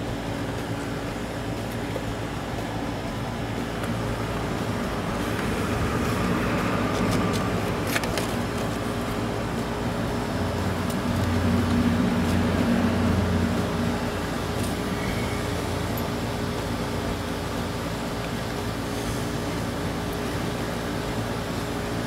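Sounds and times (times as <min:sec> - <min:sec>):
machine humming: 0:00.0 - 0:22.0.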